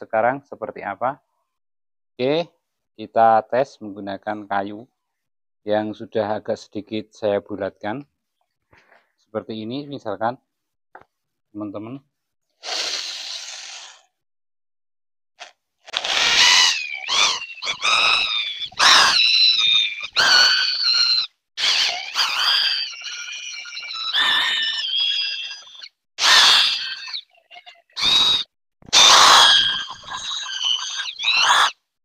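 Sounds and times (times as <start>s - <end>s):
brief rasping hiss: 12.6s - 14.1s
wood squealing on metal: 16.1s - 31.8s.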